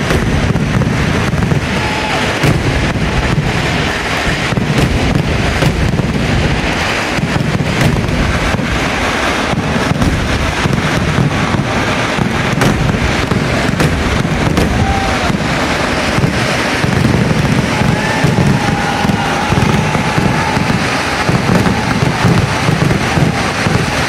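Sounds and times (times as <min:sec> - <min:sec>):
fireworks exploding: 0:00.0 - 0:24.0.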